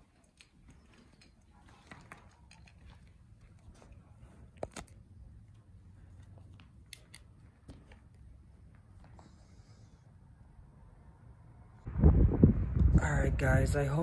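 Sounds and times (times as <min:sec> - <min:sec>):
low rumble: 0:11.8 - 0:14.0.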